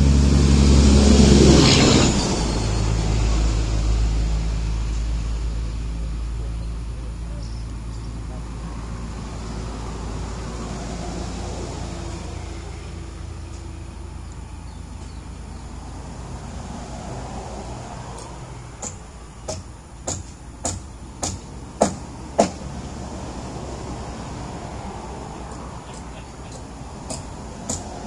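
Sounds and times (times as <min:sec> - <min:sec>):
hammer striking nail into wood: 0:18.8 - 0:22.6, 0:26.0 - 0:28.0.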